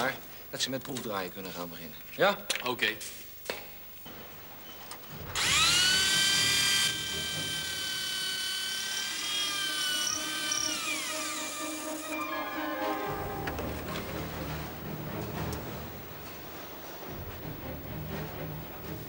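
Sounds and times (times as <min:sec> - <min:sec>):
electric motor whine: 0:05.3 - 0:12.3.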